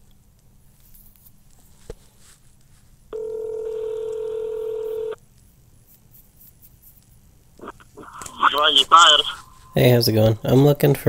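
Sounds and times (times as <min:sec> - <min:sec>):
telephone ringback tone: 0:03.2 - 0:05.2.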